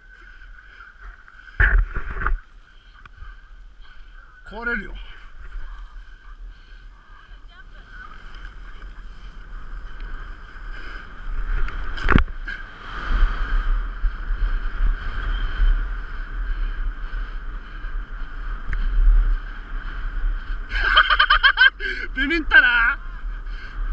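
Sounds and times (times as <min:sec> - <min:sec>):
skis scraping packed snow: 0:00.0 - 0:16.7
wind rush: 0:00.0 - 0:23.9.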